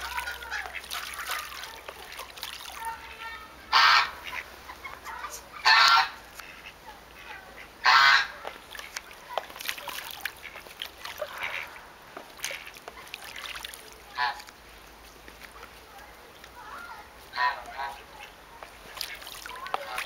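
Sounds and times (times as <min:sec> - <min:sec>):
goose honking: 0:03.2 - 0:08.4, 0:10.4 - 0:11.8, 0:14.1 - 0:14.4, 0:17.3 - 0:18.4.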